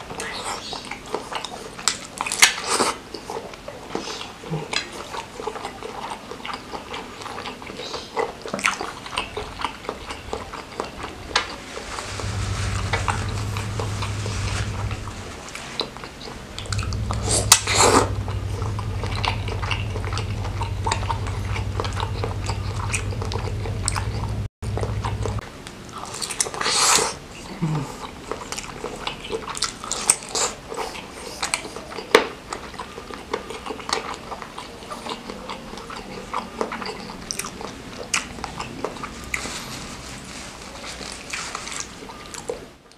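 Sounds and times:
man chewing with wet clicks: 0.0s - 39.9s, 40.7s - 42.9s
low steady hum: 10.0s - 26.0s.

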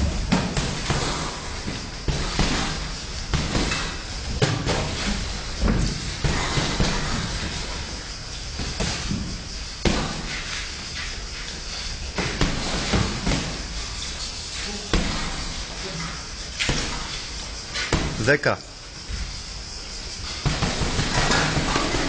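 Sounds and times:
boxing gloves punching: 0.0s - 7.8s, 8.6s - 10.4s, 12.2s - 13.7s, 14.8s - 15.6s, 20.4s - 22.0s.

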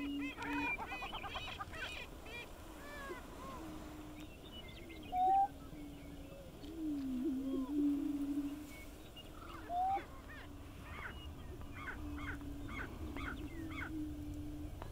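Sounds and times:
rapid cackling bird calls: 0.0s - 3.6s
prairie chickens booming: 0.0s - 14.9s.

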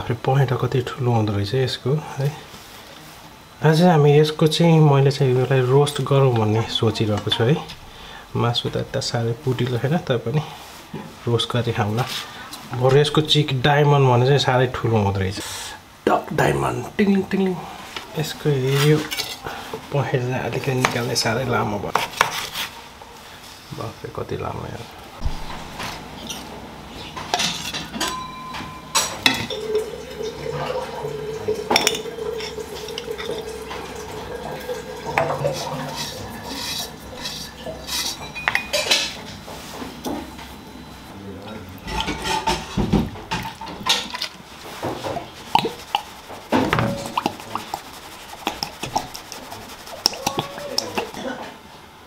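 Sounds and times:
metal spoon clinking on dishes: 27.3s - 29.8s, 38.0s - 39.2s
steady hum: 43.8s - 52.0s.

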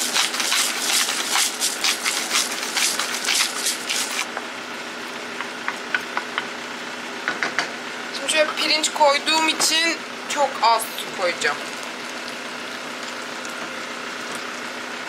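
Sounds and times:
wooden spoon stirring in pan: 0.0s - 4.3s
steady machine hum: 0.0s - 15.0s.

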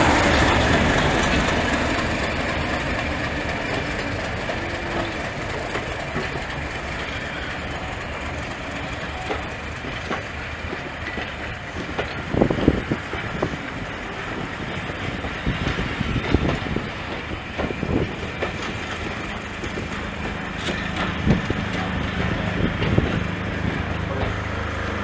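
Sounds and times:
train coaches rolling past: 0.0s - 25.0s
wheel clunks over rail joints: 15.1s - 25.0s.

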